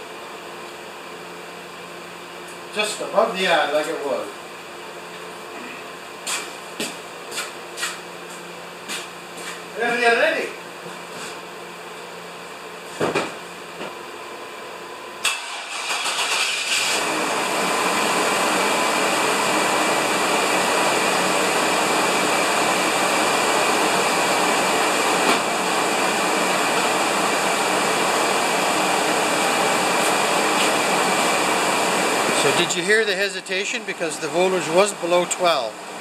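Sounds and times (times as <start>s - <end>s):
engine cranking and idling: 15.2s - 35.7s.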